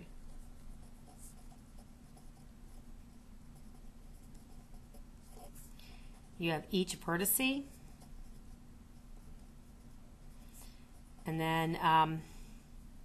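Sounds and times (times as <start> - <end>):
pen scratching on paper: 0.0 - 2.8, 3.5 - 6.4.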